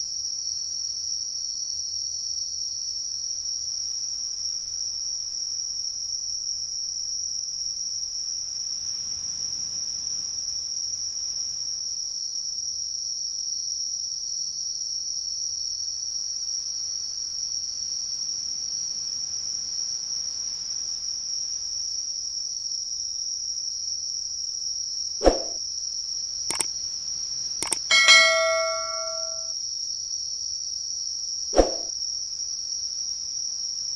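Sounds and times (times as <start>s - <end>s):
mouse click sound effects: 27.6s - 29.5s
notification bell ding: 27.6s - 29.5s.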